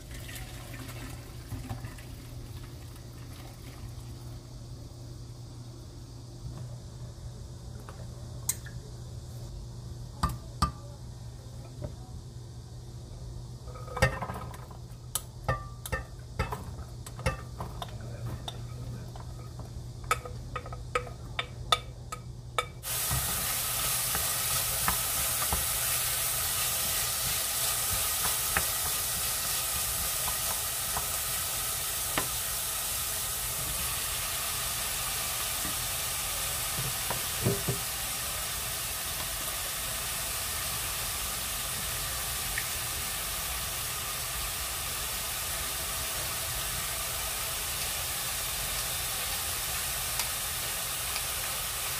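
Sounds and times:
vegetables sizzling in oil: 0:13.5 - 0:51.9.

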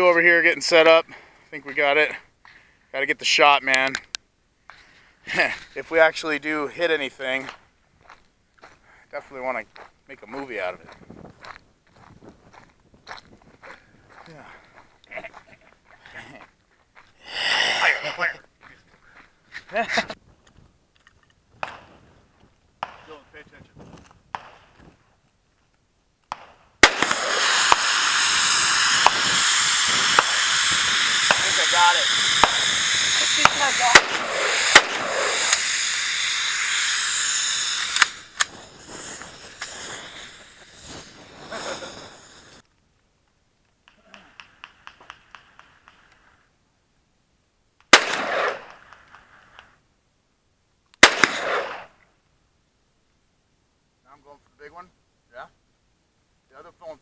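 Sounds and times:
hiss of escaping gas: 0:17.2 - 0:18.2, 0:26.8 - 0:42.6
rifle shots: 0:26.3 - 0:36.7, 0:47.9 - 0:48.9, 0:51.0 - 0:51.9
fire extinguisher bursting: 0:26.8 - 0:42.6.

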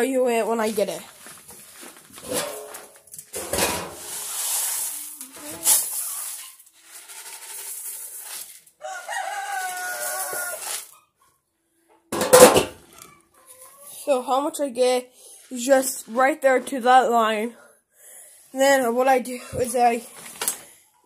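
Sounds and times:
plastic scoop scraping feed: 0:01.6 - 0:11.0
rooster crowing: 0:08.8 - 0:10.8.

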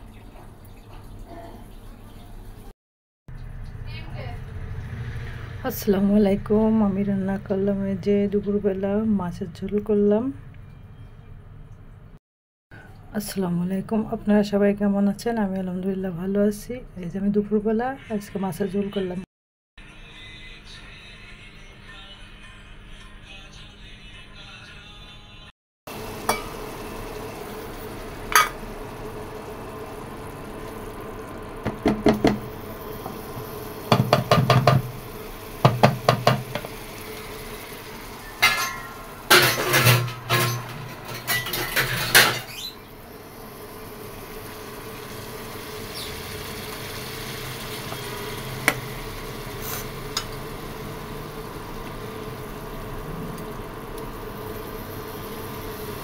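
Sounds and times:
curry simmering hiss: 0:25.9 - 0:39.4, 0:42.8 - 0:56.0
metal spatula scraping a pan: 0:38.4 - 0:42.7.

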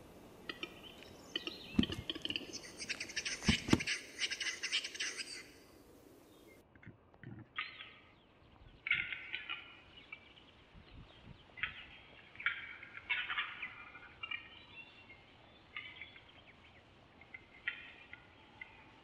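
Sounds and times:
capercaillie calls: 0:00.5 - 0:05.6.

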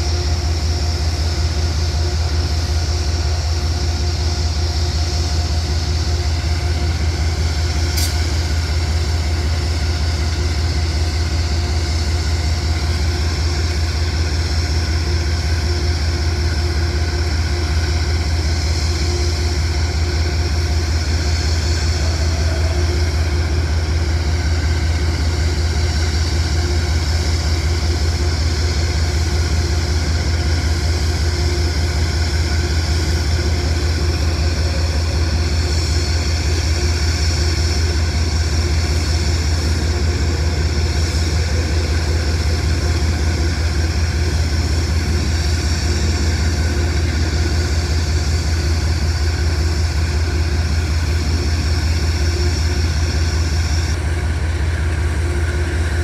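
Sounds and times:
diesel locomotive idling: 0:00.0 - 0:56.0
brief high click: 0:08.0 - 0:08.2.

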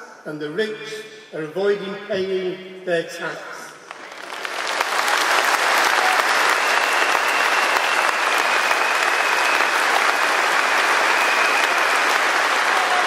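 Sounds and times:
crowd applauding: 0:03.9 - 0:13.0.

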